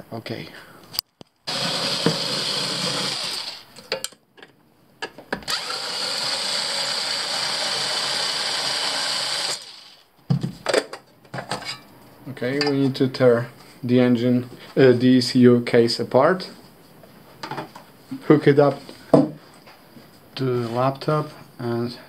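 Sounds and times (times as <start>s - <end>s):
electric screwdriver running: 1.5s - 3.7s, 5.5s - 10.0s.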